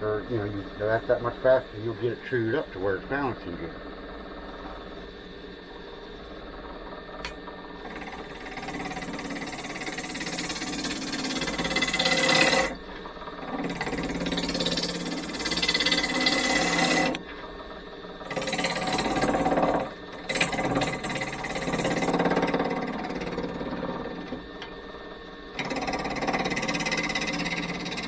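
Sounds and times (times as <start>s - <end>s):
lathe tool cutting wood: 5.8s - 28.0s.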